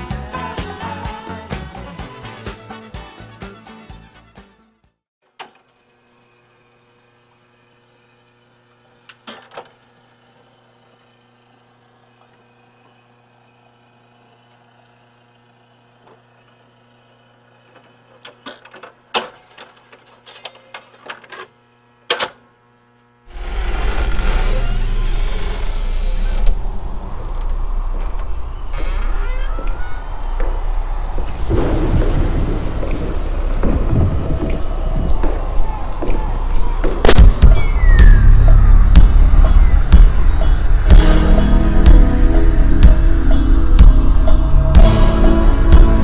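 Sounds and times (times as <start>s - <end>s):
loud bassy rumbling: 23.3s - 46.0s
low hum: 23.3s - 46.0s.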